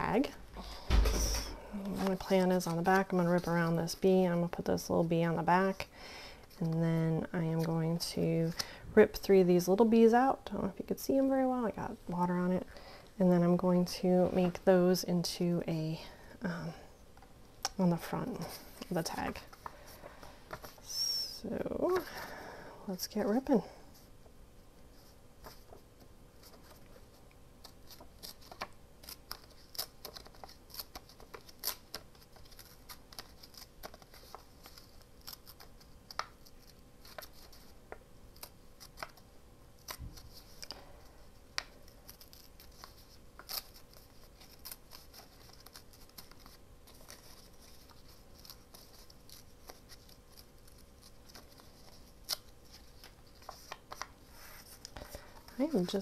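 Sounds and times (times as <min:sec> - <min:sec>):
paper rustling: 0:24.9 - 0:39.2, 0:39.8 - 0:56.0.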